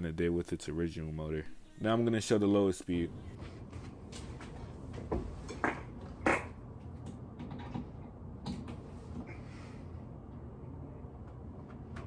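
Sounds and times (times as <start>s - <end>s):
ceiling fan humming: 0.0s - 12.0s.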